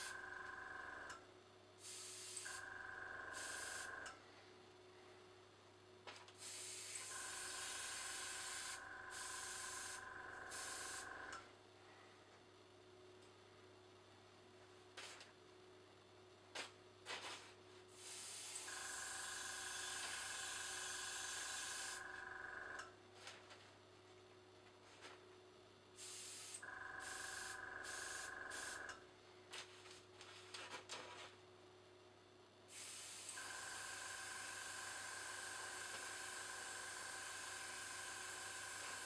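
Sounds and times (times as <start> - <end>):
airbrush hissing: 6.4 - 11.1, 26.0 - 28.8.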